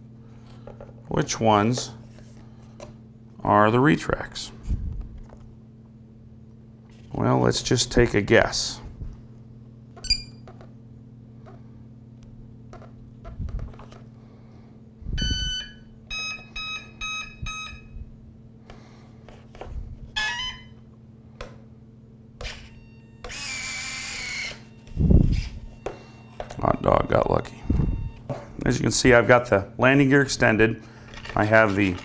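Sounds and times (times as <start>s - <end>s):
electronic startup beeps: 24.8s - 28.3s.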